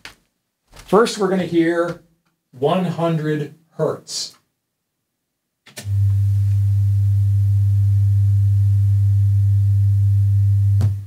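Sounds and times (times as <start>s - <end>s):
low sine-wave test tone: 5.8s - 11.0s.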